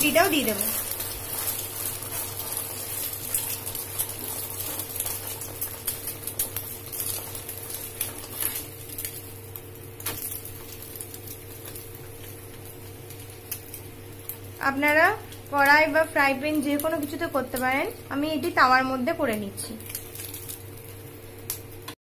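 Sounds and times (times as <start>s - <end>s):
food sizzling in oil: 0.0s - 22.0s.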